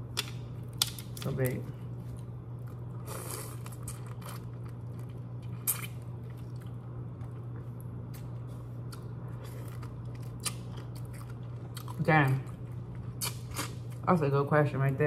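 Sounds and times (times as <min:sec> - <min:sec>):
steady low hum: 0:00.0 - 0:15.0
wet chewing of shrimp: 0:02.0 - 0:14.0.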